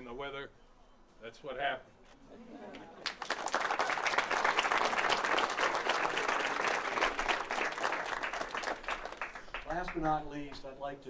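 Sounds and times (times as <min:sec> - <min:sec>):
audience applauding: 0:03.0 - 0:10.1.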